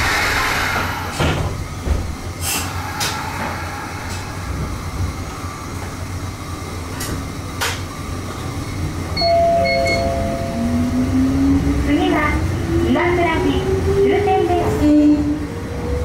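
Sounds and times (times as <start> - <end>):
train low rumble: 0.0 - 16.0
two-note tone: 9.2 - 11.2.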